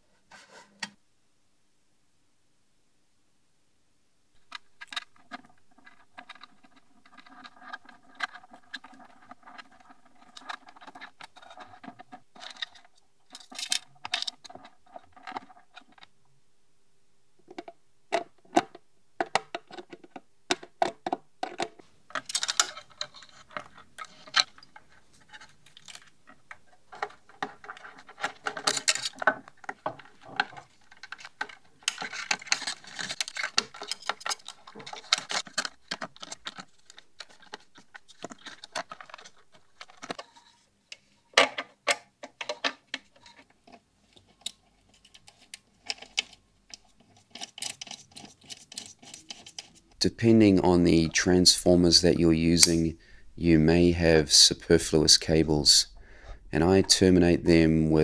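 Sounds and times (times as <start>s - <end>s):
metal hardware clicking and scraping: 20.8s - 50.0s.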